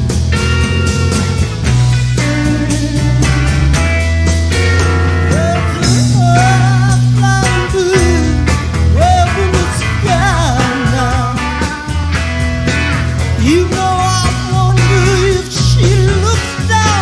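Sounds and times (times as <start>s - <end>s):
live rock band playing: 0.0s - 17.0s
lead vocal singing: 4.6s - 11.8s, 13.4s - 17.0s.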